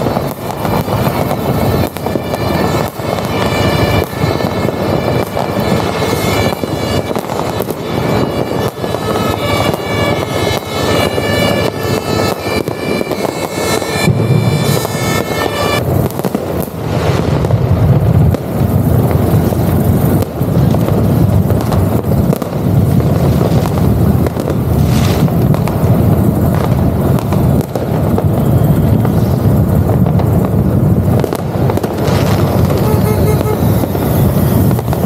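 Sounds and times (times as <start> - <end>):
wind on microphone: 0.0 - 35.0.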